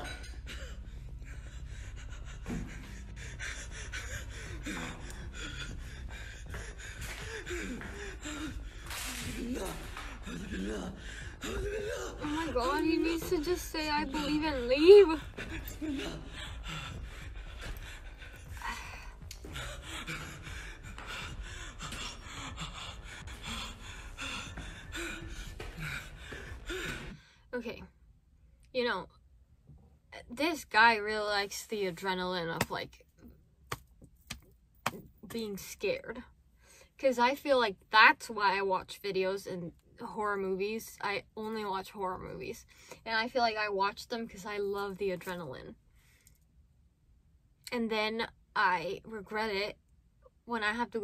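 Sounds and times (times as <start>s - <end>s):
man panting and gasping: 0.0s - 27.4s.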